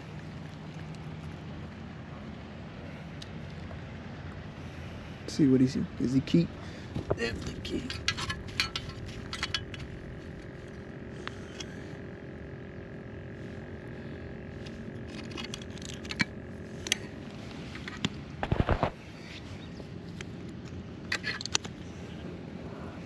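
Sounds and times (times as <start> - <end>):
steady drone with held tones: 4.5 - 20.5.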